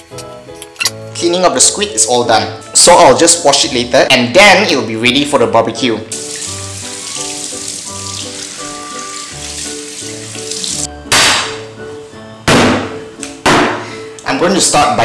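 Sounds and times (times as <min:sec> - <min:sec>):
background music: 0:00.0 - 0:15.0
tap water running into sink: 0:06.1 - 0:10.9.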